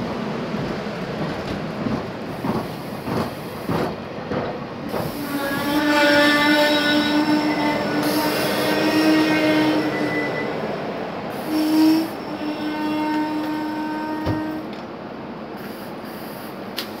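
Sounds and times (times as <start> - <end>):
electric train rolling with whine: 3.8 - 15.0.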